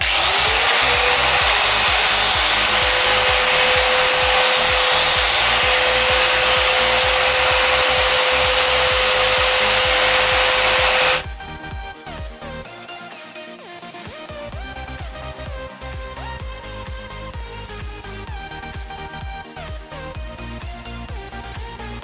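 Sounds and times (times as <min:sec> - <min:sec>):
angle grinder whining: 0:00.0 - 0:11.4.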